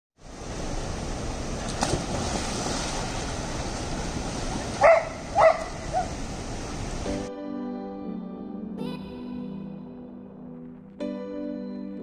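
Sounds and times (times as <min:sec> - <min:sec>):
flowing river water: 0:00.2 - 0:07.3
dog barking: 0:04.8 - 0:06.2.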